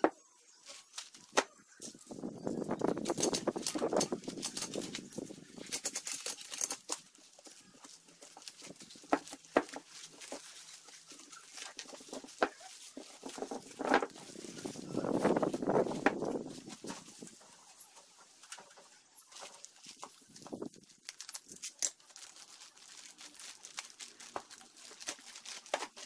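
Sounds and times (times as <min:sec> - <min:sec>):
paper tearing and crackling: 0:02.8 - 0:26.0.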